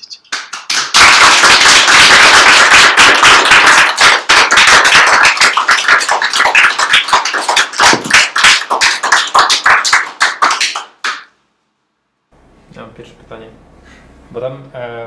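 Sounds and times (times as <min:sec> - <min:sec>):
audience applauding: 0:00.3 - 0:11.3.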